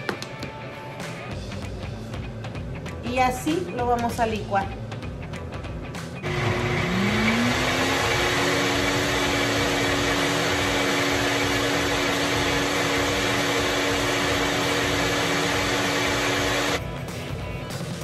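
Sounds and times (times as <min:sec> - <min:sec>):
blender whirring: 0:06.2 - 0:16.8.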